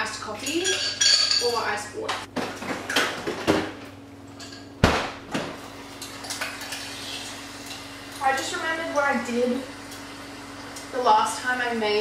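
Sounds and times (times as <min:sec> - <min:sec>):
glass and ice clinking: 0:00.5 - 0:01.6.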